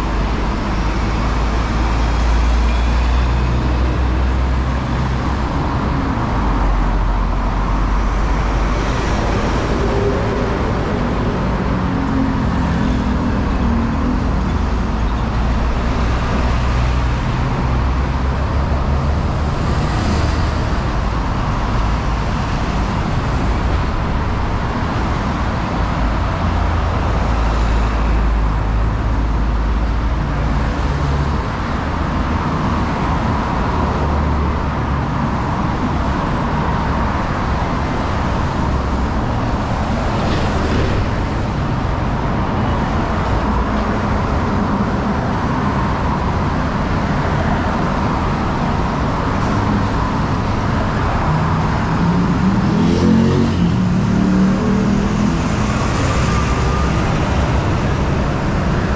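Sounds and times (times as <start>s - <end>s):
city road traffic rumble: 0.0s - 58.9s.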